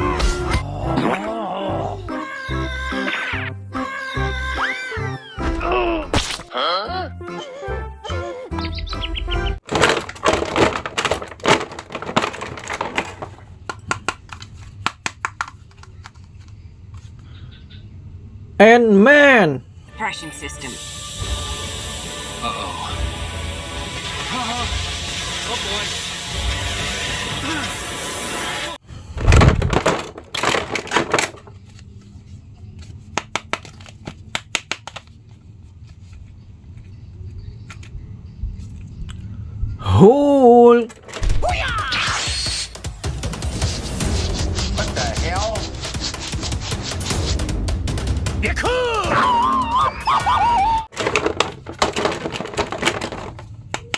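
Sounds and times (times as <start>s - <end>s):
plastic wrapping crinkling: 9.7s - 13.5s
plastic figures clicking and tapping: 9.8s - 17.0s, 50.9s - 53.9s.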